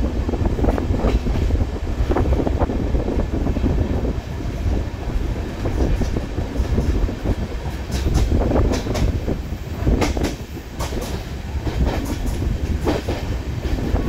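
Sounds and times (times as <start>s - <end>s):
train wheels clacking over rail joints: 5.6s - 14.0s.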